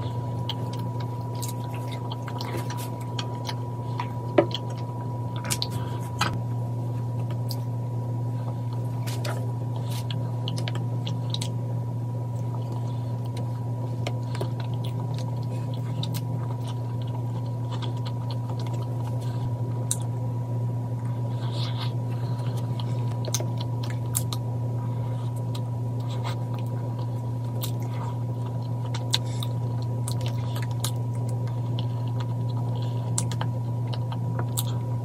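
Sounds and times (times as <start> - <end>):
soft chewing: 0.0 - 6.1, 12.3 - 20.1, 20.9 - 34.9
steady low hum: 0.0 - 35.0.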